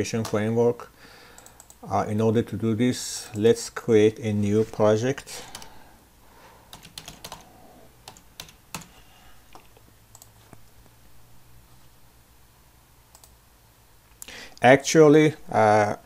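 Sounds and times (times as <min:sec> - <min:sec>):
faint steady hum: 0:00.0 - 0:16.0
computer keyboard typing: 0:01.3 - 0:01.8, 0:05.4 - 0:05.7, 0:06.7 - 0:10.3.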